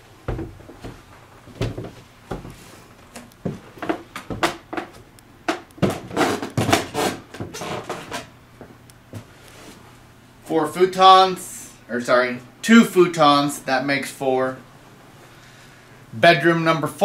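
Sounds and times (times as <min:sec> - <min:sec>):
knocks and thumps: 0:00.3 - 0:01.0, 0:01.6 - 0:02.5, 0:03.4 - 0:09.3.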